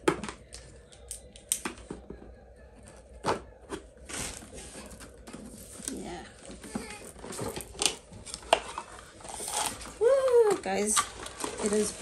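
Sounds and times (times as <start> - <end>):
packaging rustling: 4.1 - 12.0.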